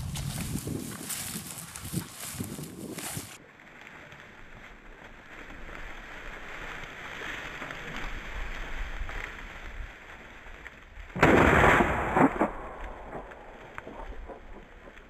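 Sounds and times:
low wind noise: 0:00.0 - 0:03.4, 0:04.3 - 0:15.0
shotgun shot: 0:11.2 - 0:15.0.

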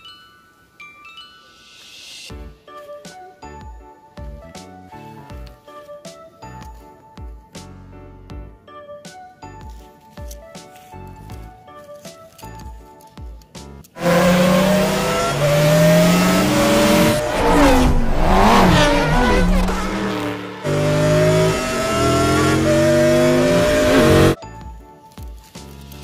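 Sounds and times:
race car engines passing: 0:14.0 - 0:24.4.

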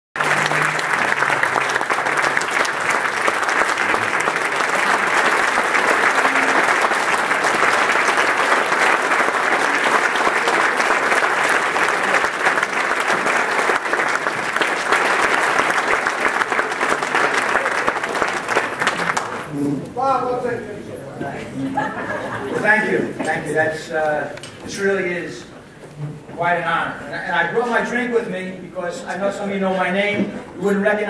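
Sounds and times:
audience applauding: 0:00.2 - 0:19.5.

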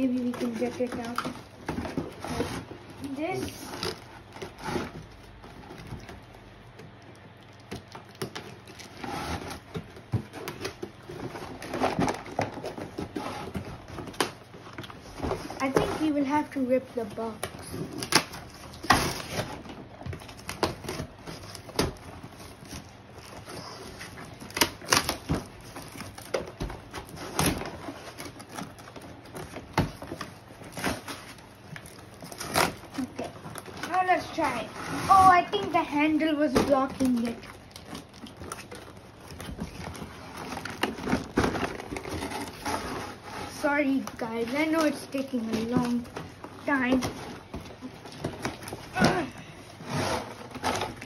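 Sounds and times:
cardboard crinkling and cracking: 0:00.0 - 0:51.0.

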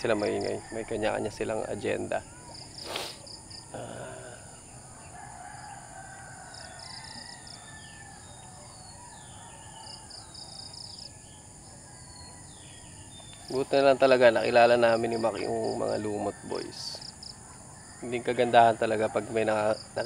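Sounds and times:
rooster crowing: 0:00.0 - 0:01.9, 0:04.3 - 0:10.6, 0:14.8 - 0:19.8
insect trilling: 0:00.0 - 0:08.6, 0:13.3 - 0:20.0.

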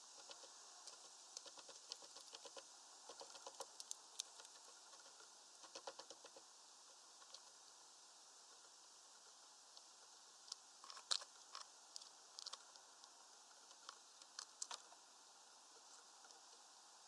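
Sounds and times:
birds pecking seed clicks: 0:00.2 - 0:06.5, 0:09.7 - 0:15.0.

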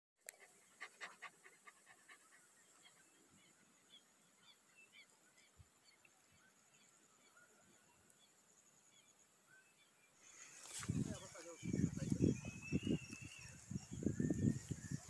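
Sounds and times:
high bird chirps: 0:10.4 - 0:15.0.

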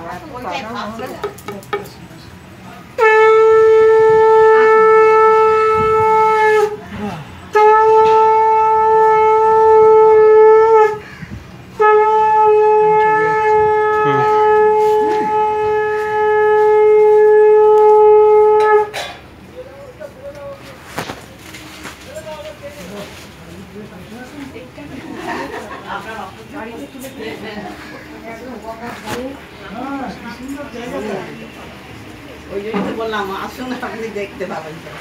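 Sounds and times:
conch shell blown: 0:02.9 - 0:11.1, 0:11.7 - 0:19.2.

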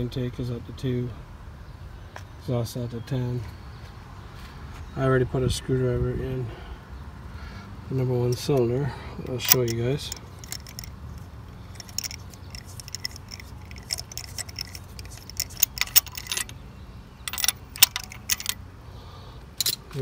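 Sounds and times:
metal tools clinking on engine: 0:08.2 - 0:16.6, 0:17.2 - 0:18.7, 0:19.5 - 0:20.0.

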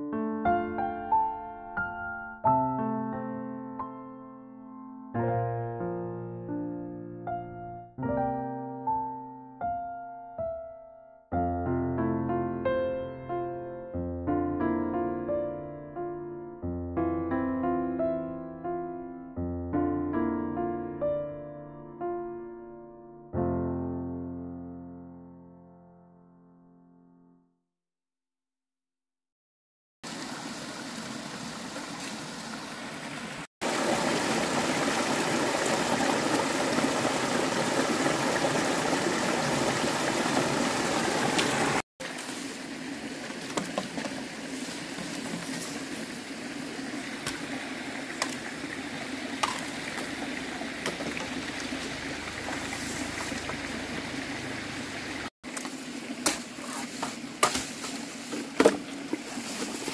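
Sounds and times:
stream running over rocks: 0:30.0 - 0:59.9.

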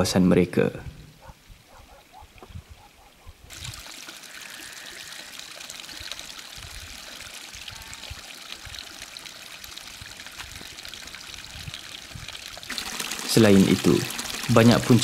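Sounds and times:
water trickling into trough: 0:03.5 - 0:15.0.

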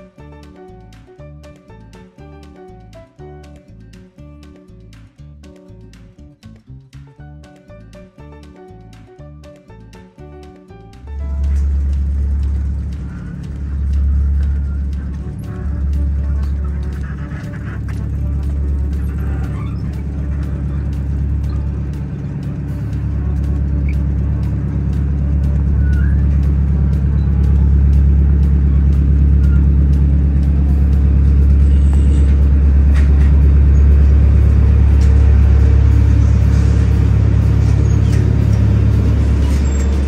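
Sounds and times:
ferry engine humming: 0:10.9 - 0:40.0.

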